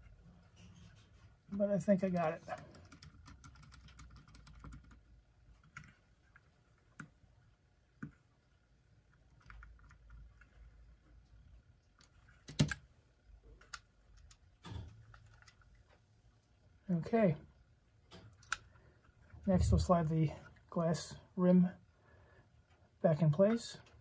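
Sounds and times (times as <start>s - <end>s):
small clicks and taps: 13.5s - 16.5s, 18.1s - 18.8s.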